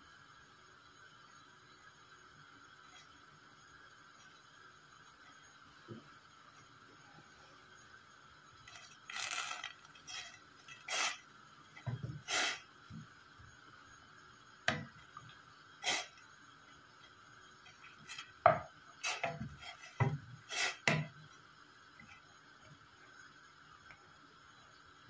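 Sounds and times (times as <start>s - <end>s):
wooden spatula scraping metal pot: 19.0s - 21.1s.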